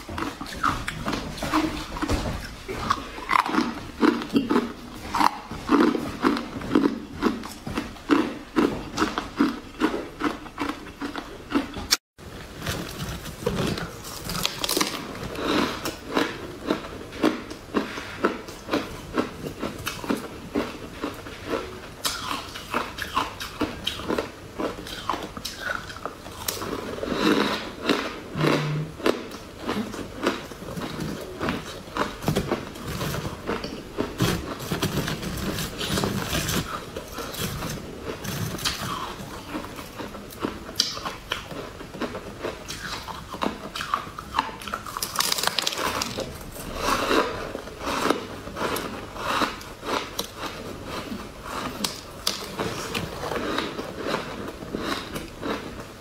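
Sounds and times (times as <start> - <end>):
ice crunched between teeth: 44.6 - 50.6.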